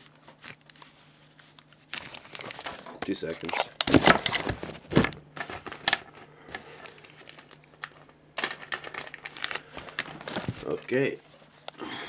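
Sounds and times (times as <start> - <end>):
padded envelope crinkling and tearing: 6.9 - 11.2.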